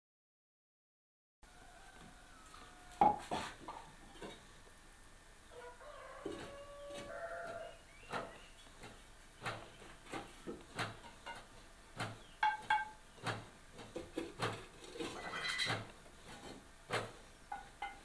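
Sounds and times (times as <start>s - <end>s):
clay pots knocking and clinking: 3.0s - 4.4s, 8.1s - 18.0s.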